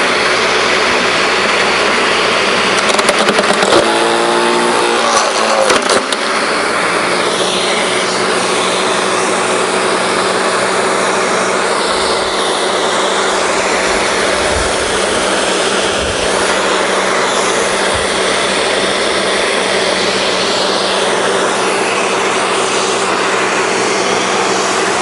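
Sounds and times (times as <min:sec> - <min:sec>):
garden shredder motor running: 0:00.0 - 0:25.0
branch cracking in shredder: 0:02.7 - 0:06.4.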